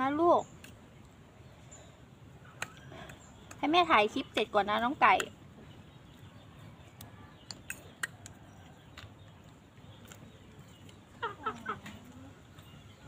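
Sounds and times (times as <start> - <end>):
chickens squabbling: 7.7 - 13.0.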